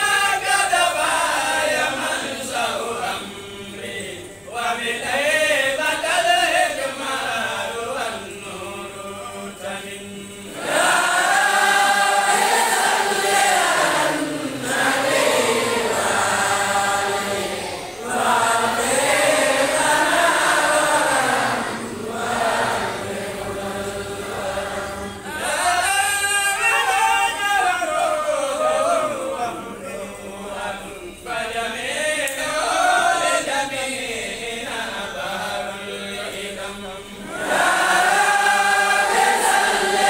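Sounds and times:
men chanting in unison: 0.0 - 40.0.

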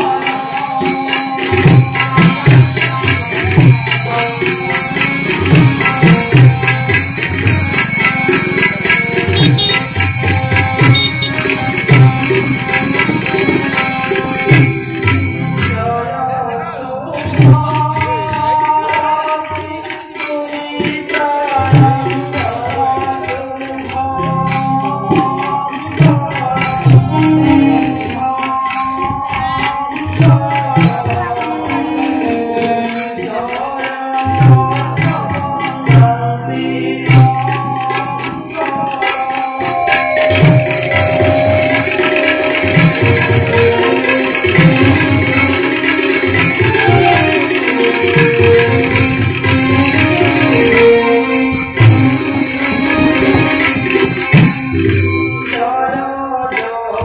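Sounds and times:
tabla drumming: 0.0 - 57.0
held melodic line: 1.8 - 18.6, 36.7 - 55.8.

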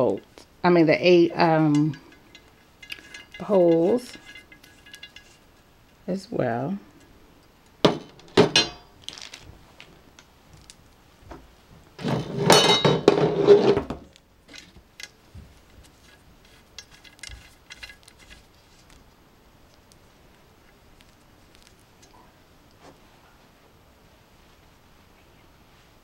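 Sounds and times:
metal tubes knocking and clinking: 1.2 - 6.0, 7.8 - 8.9, 12.0 - 13.7.

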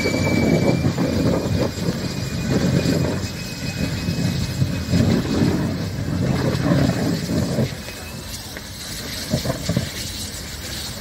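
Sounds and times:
faint high whistle: 0.0 - 1.3
fire rumbling: 0.0 - 11.0.

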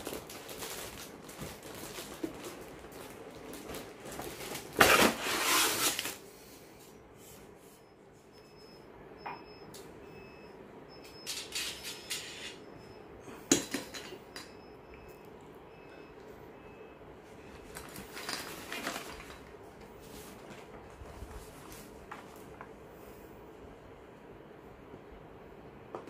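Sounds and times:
plastic wrapping rustling: 0.0 - 6.3, 17.6 - 22.8.

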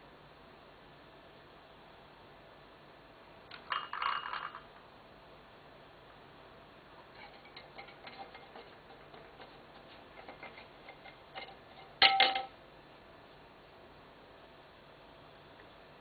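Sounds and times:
dish clattering and ringing: 3.7 - 4.6, 10.2 - 12.5
dishes clicking and clinking: 7.1 - 12.5.

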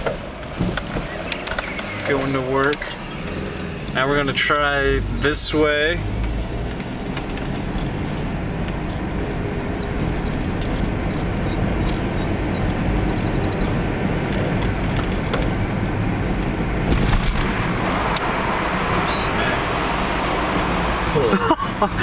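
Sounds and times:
car engine and road noise: 0.0 - 22.0.

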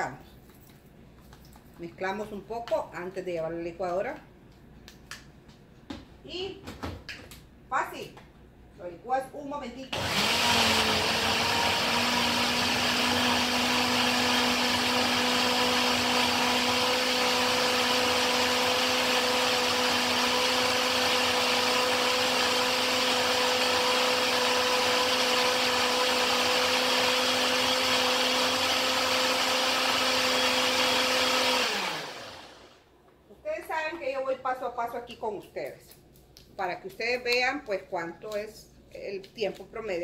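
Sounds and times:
blender running: 9.9 - 32.8.

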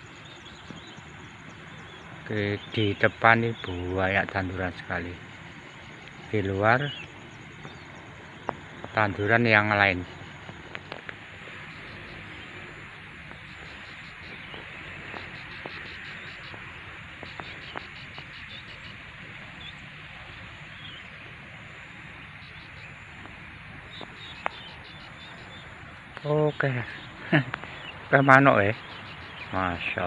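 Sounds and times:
high chirping trills: 0.0 - 30.0
steady hiss: 0.0 - 30.0
scattered clicks: 27.4 - 27.8.

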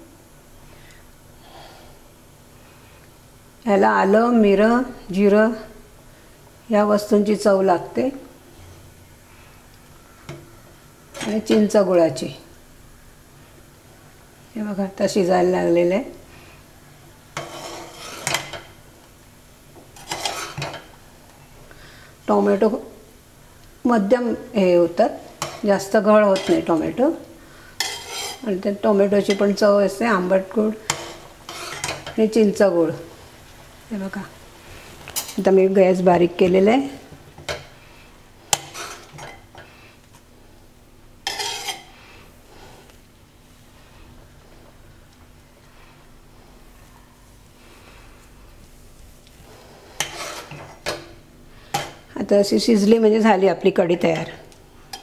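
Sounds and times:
metal ladle scraping pot: 17.4 - 18.6, 20.0 - 20.8, 27.8 - 28.6, 30.9 - 32.1, 38.5 - 39.4, 41.2 - 41.9, 50.0 - 51.0.

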